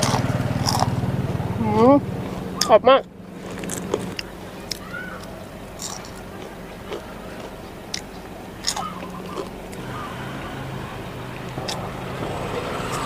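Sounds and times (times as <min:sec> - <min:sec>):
sharp crunches: 0:00.0 - 0:01.0, 0:03.4 - 0:09.5
chewing fried pork: 0:00.0 - 0:02.8, 0:03.4 - 0:13.0
low hum: 0:00.0 - 0:13.0.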